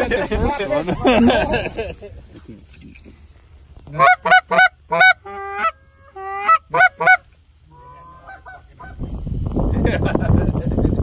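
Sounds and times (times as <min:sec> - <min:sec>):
goose honking: 0:03.9 - 0:09.0.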